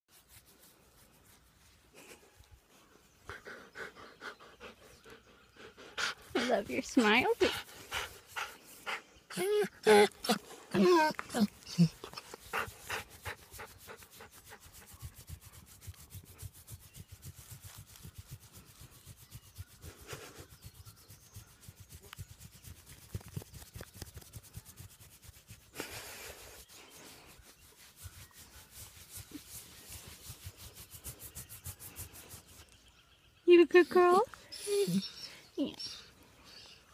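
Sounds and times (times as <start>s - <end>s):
hand scratching dog fur: 0.1s - 2.3s, 9.4s - 32.8s.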